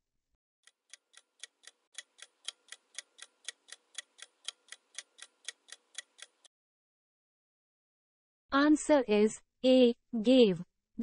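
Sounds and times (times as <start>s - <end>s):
clock ticking: 0.6s - 6.5s.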